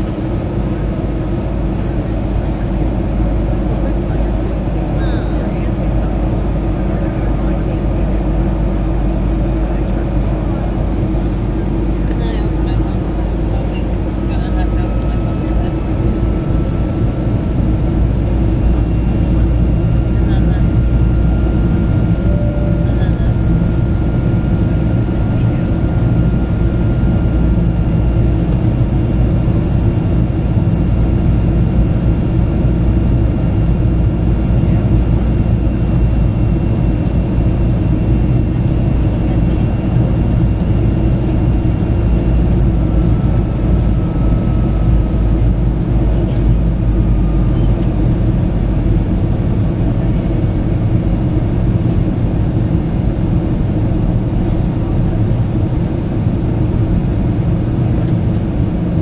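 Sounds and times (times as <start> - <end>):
jet engines droning: 0.0 - 59.0
faint high whine: 21.3 - 24.5.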